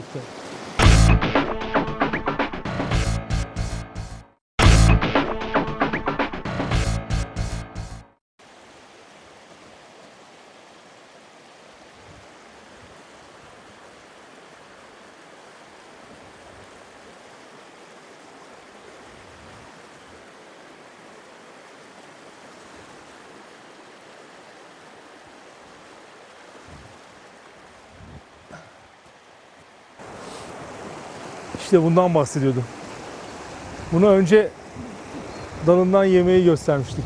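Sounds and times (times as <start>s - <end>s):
stream rushing over rocks: 0.0s - 1.0s, 8.4s - 37.0s.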